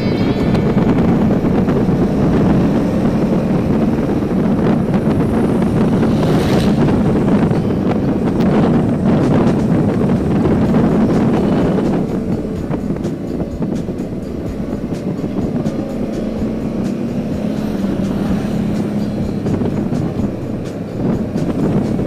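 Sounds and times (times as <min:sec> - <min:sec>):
motorcycle engine running: 0:00.0 - 0:22.0
wind noise on microphone: 0:00.0 - 0:22.0.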